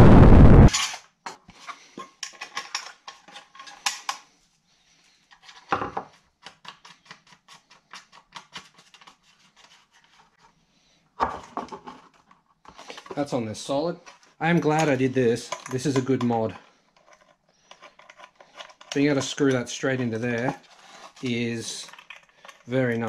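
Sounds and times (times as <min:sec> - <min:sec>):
plastic and metal clicks and scrapes: 0:00.7 - 0:04.3, 0:05.2 - 0:10.5, 0:11.4 - 0:13.2, 0:14.0 - 0:23.0.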